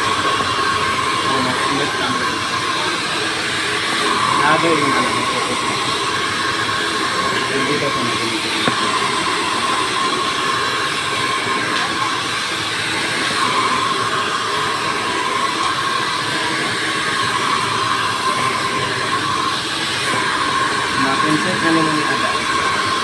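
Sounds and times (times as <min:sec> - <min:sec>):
hair dryer blowing with whine: 0:00.0 - 0:23.0.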